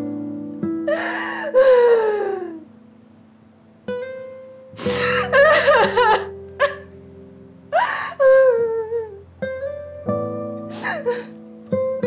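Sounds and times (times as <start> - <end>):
soft acoustic guitar music: 0.0 - 12.0
woman sobbing: 0.9 - 2.6, 4.8 - 6.9, 7.8 - 9.2, 10.7 - 11.4.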